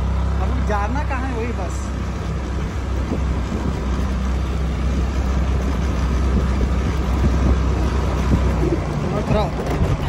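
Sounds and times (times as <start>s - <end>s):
wind rumbling on microphone: 1.9s - 10.0s
motor scooter running: 4.8s - 10.0s.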